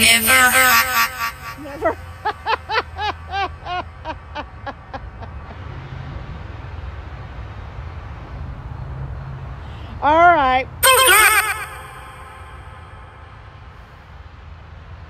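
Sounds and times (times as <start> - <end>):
distant traffic rumble: 1.6 - 10.8
short electronic pitched blips: 10.8 - 13.4.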